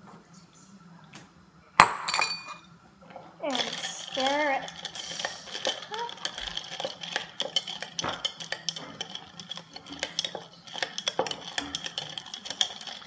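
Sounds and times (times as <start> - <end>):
spoon clinking against glass and ice: 1.8 - 2.7, 3.4 - 13.0.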